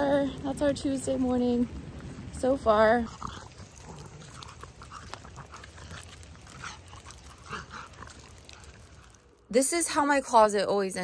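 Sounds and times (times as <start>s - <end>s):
dog panting: 3.2s - 9.2s.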